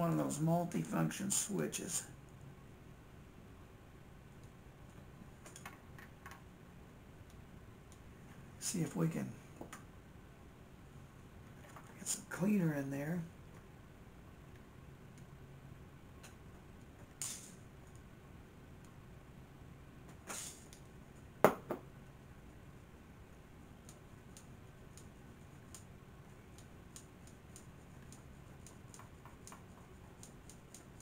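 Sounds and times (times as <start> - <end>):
faint low hum: 0.0 - 31.0
short hisses: 20.3 - 20.7
small clicks and taps of tools: 26.5 - 31.0.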